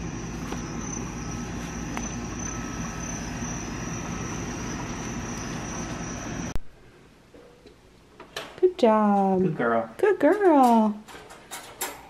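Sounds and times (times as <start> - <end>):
night insects chorus: 0.0 - 6.6.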